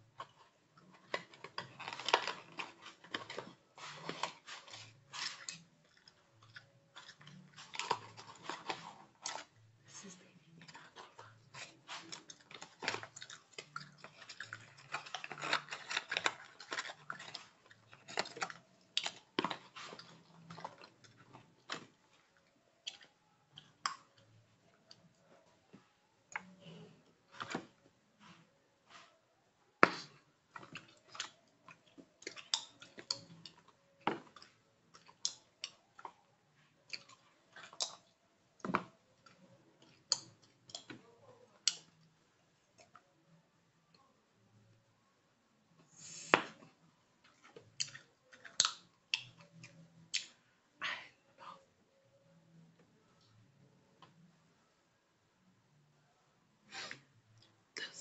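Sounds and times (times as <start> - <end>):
gum chewing: 10.6 - 22.0, 47.6 - 50.4.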